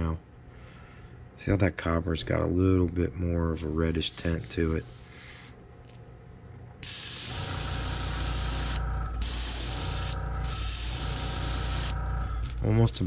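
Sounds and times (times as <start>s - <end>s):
airbrush hissing: 6.8s - 12.0s
air compressor motor hum: 6.8s - 13.0s.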